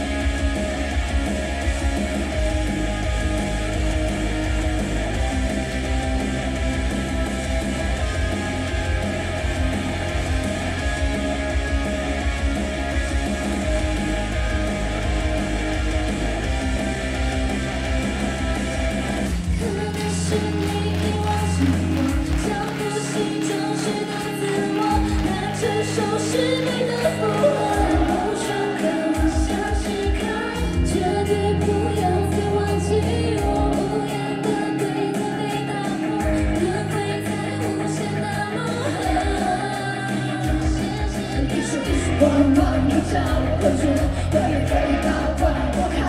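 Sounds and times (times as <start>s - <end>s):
heavy bass beat: 0.0s - 33.9s, 39.0s - 46.0s
pop-rock song with guitar: 0.0s - 46.0s
person singing: 19.3s - 46.0s.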